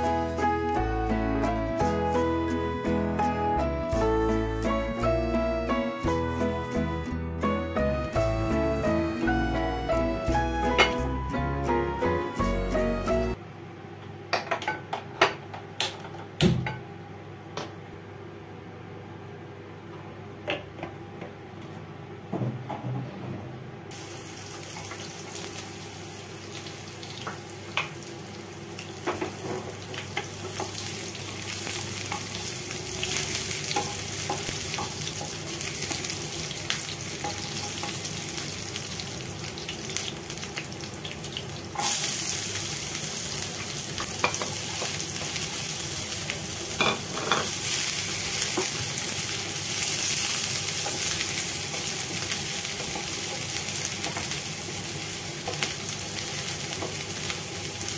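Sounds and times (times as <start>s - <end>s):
sizzling in hot oil: 23.9s - 57.9s.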